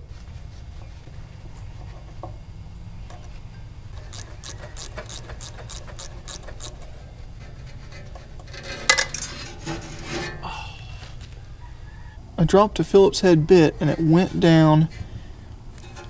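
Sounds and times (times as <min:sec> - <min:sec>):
ratcheting tool clicks: 0:04.0 - 0:06.8
metallic clatter: 0:04.0 - 0:10.4.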